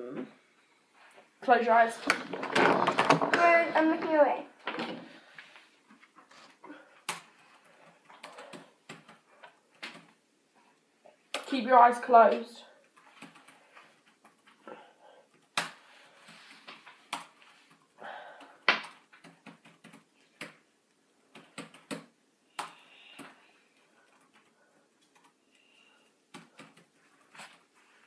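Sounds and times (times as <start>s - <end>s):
fabric scarf rustling against hair: 26.9s - 28.0s.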